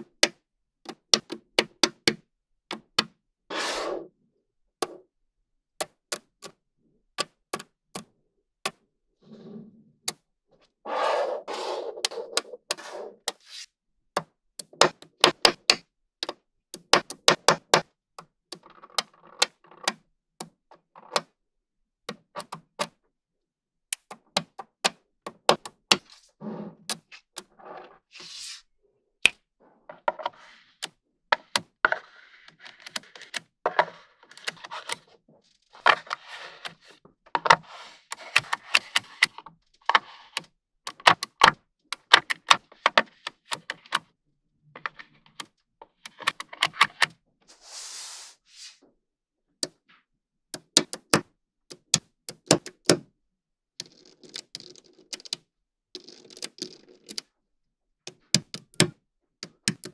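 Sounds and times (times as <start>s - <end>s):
magnetic balls clicking together: 53.8s - 55.4s, 56.0s - 57.3s.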